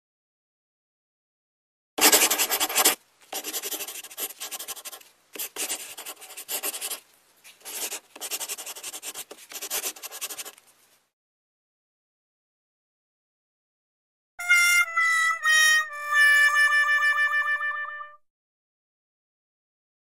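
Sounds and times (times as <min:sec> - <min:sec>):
scratchy rubbing on cloth: 0:02.0 - 0:10.7.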